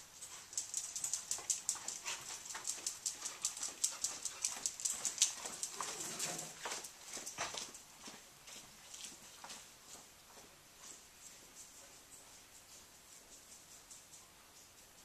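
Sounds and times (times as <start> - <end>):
dog claws clicking on tiles: 0.2 - 7.8.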